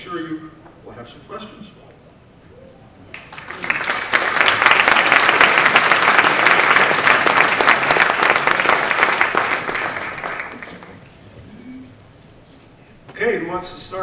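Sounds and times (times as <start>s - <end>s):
audience applauding: 3.1s - 11.1s.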